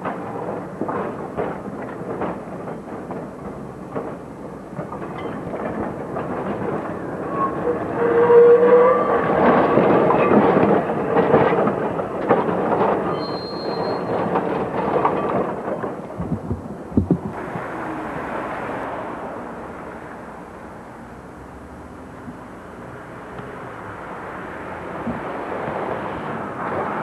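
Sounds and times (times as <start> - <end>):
streetcar wheels clicking over track: 0.0 - 8.3, 9.2 - 17.4
high squeal: 13.1 - 14.2.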